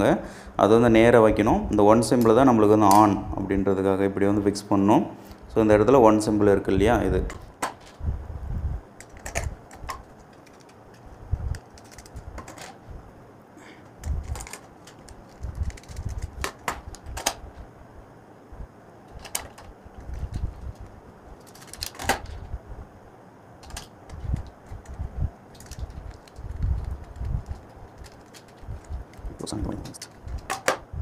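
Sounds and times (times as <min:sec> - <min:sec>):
hands handling plastic plate: 0:23.6 - 0:30.8.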